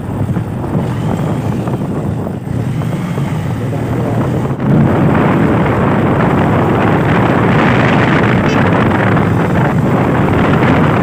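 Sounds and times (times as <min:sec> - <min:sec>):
motorcycle engine: 0:00.0 - 0:11.0
road noise: 0:00.0 - 0:11.0
wind buffeting microphone: 0:00.0 - 0:11.0.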